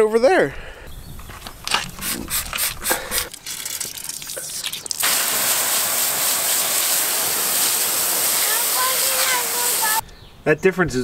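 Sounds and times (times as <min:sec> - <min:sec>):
hose water spray hissing: 0:01.7 - 0:10.0.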